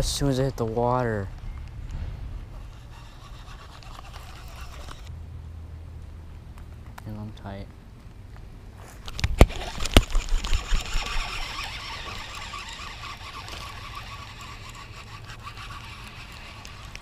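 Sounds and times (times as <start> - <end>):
fishing reel whirring: 2.7 - 5.1, 9.1 - 17.0.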